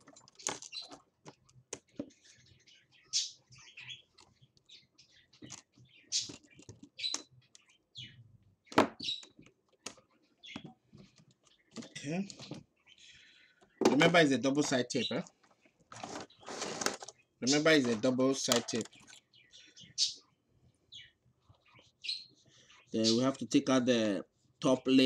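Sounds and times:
high squeaky scrapes: 16.0 - 18.2.

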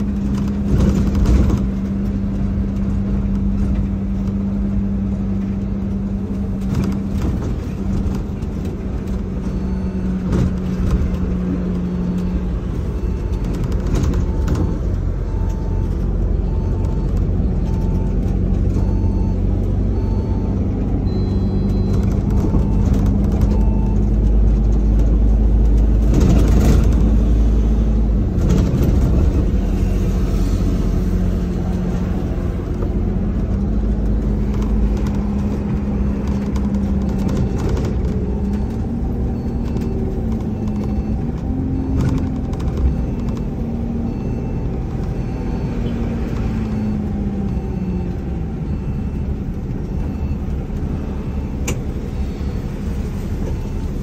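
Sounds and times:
bus engine and road drone: 0.0 - 54.0
short beeps: 9.4 - 24.1.

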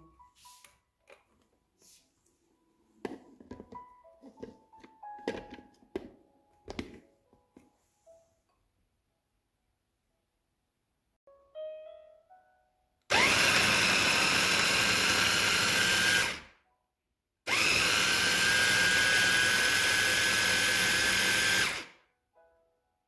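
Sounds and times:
electric food chopper whining: 13.1 - 16.5, 17.5 - 22.0.

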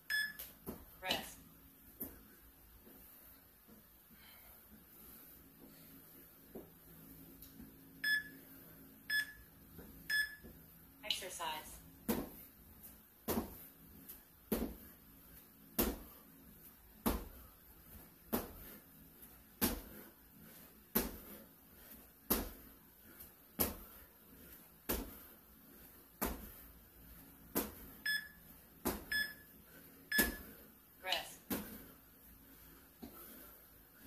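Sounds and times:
short electronic beeps: 8.0 - 8.3, 28.1 - 28.4, 29.1 - 29.4, 30.1 - 30.4.

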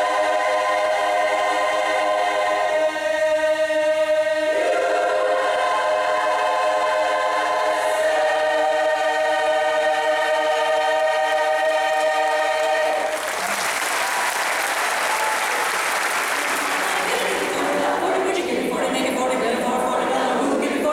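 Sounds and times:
women's chorus singing a cappella: 0.0 - 13.1, 16.5 - 20.9
audience applause: 11.9 - 18.4.

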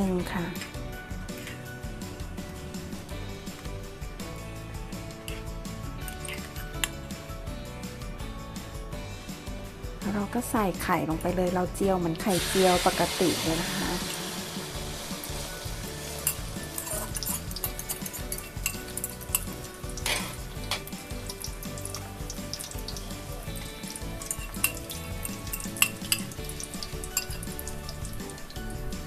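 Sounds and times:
egg mixture sizzling in hot oil: 0.0 - 29.0
fork clicking and scraping: 5.2 - 7.0, 16.0 - 21.4, 24.2 - 27.7.

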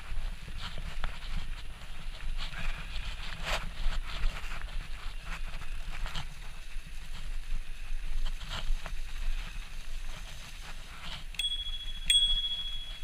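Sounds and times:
bicycle rumbling and rattling: 0.0 - 13.0
bicycle bell dings: 11.4 - 13.0.

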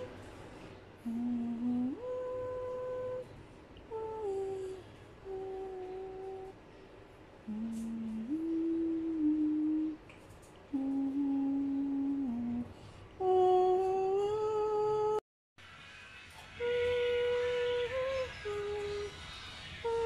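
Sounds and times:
person humming a slow tune: 0.0 - 0.2, 1.0 - 6.6, 7.4 - 10.0, 10.7 - 15.2, 16.5 - 19.2, 19.8 - 20.0.

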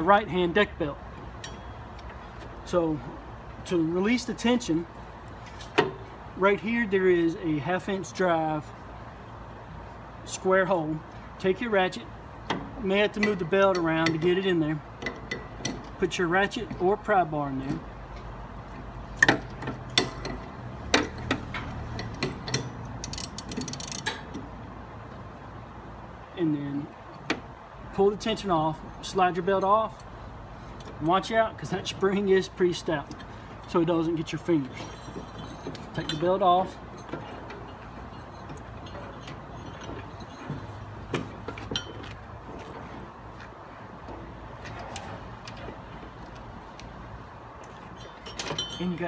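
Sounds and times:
ratchet clicks and metal knocks: 1.2 - 2.8, 12.4 - 24.6, 32.9 - 42.7, 47.6 - 49.0.

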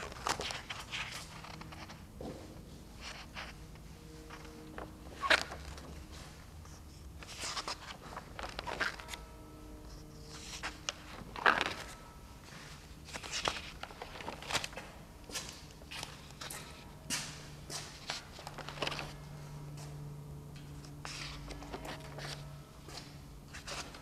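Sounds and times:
sketchbook pages rustling: 0.0 - 2.0, 3.0 - 6.0, 6.6 - 9.3, 9.9 - 14.8, 17.8 - 19.2, 21.0 - 24.0.

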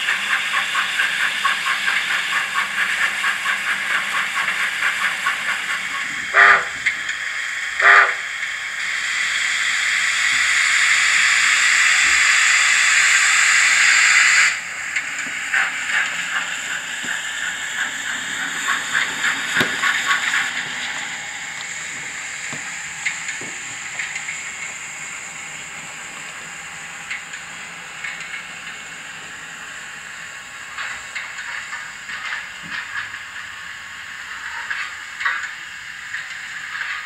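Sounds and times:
loud steam hiss: 0.0 - 37.0
rhythmic steam chuffs: 0.0 - 37.0
mechanical clanking: 17.0 - 24.8.

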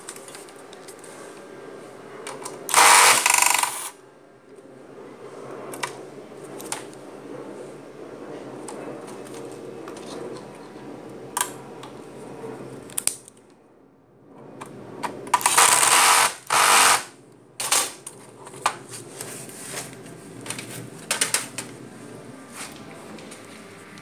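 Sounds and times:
loud noisy rushing bursts: 2.6 - 4.0, 15.2 - 18.0
tools and screws clicking: 2.7 - 3.9.

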